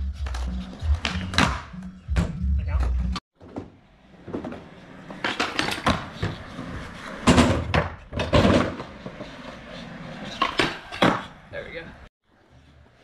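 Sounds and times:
skateboard wheels rolling on concrete: 0:02.9 - 0:13.0.

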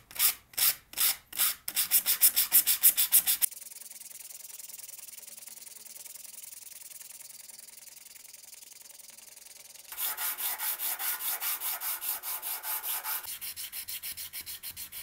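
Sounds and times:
sandpaper rubbing on steel: 0:01.8 - 0:03.5, 0:09.9 - 0:15.0
slow sanding strokes on sandpaper: 0:01.8 - 0:03.6, 0:09.9 - 0:15.0.

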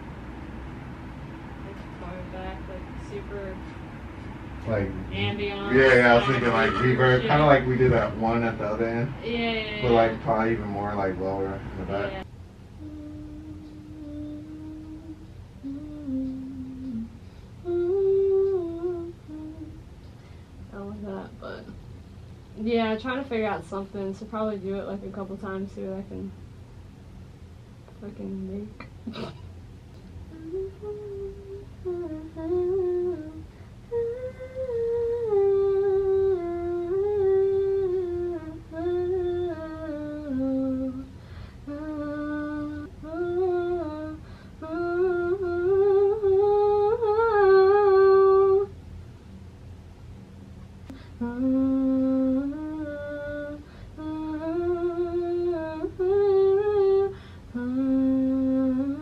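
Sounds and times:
woman humming a melody: 0:01.7 - 0:03.7, 0:05.2 - 0:08.1, 0:09.2 - 0:10.4, 0:11.8 - 0:19.8, 0:30.2 - 0:48.7, 0:50.9 - 0:59.0.

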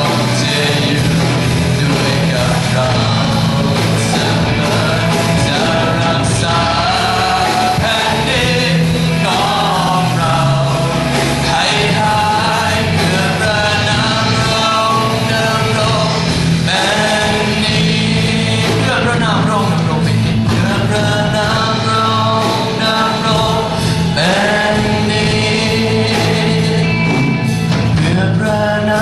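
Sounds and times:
band accompaniment: 0:00.0 - 0:29.0
man singing into a microphone: 0:00.0 - 0:29.0.

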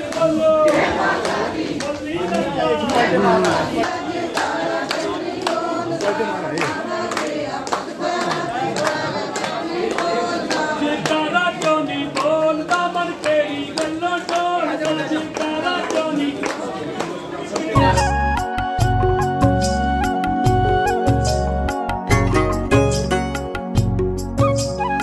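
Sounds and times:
voices singing a chant: 0:00.0 - 0:17.8
steady clapping: 0:00.0 - 0:18.1.

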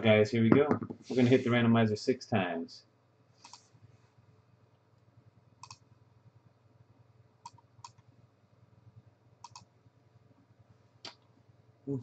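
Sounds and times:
faint mouse clicks: 0:03.4 - 0:03.7, 0:05.0 - 0:05.9, 0:07.4 - 0:08.1, 0:09.4 - 0:09.7.

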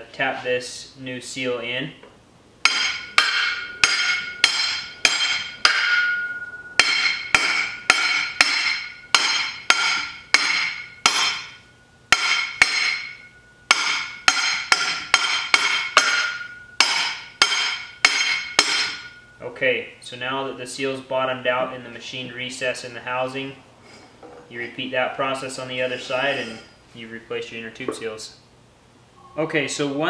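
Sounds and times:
hammer striking metal pipe: 0:02.6 - 0:19.4.

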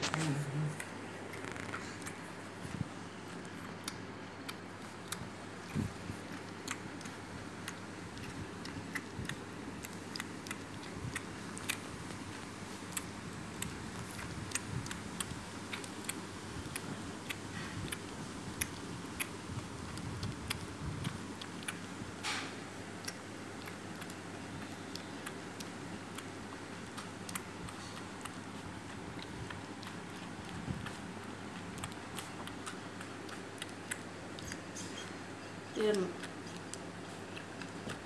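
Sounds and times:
steady low hiss: 0:00.0 - 0:38.0
puppy suckling clicks: 0:03.3 - 0:38.0.

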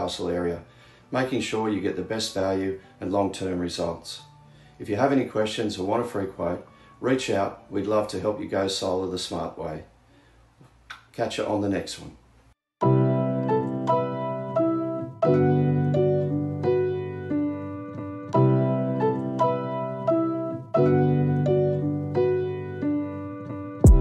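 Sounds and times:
piano chords and notes: 0:12.8 - 0:24.0.

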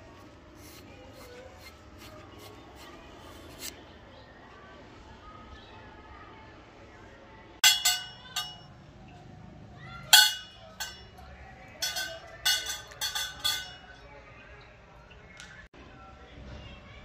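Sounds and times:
metal rifle parts clinking: 0:07.6 - 0:08.6, 0:10.1 - 0:11.2, 0:11.8 - 0:14.0.

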